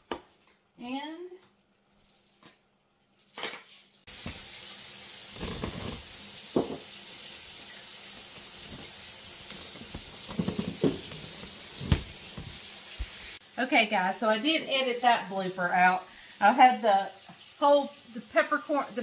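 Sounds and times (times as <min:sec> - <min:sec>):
rushing hiss of running water: 0:04.1 - 0:19.0.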